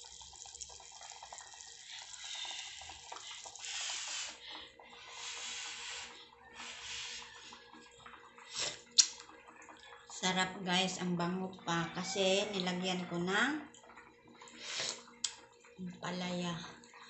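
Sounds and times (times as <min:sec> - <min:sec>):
broth sloshing and dripping: 0:00.0 - 0:11.8
blowing and sipping soup: 0:08.5 - 0:09.2.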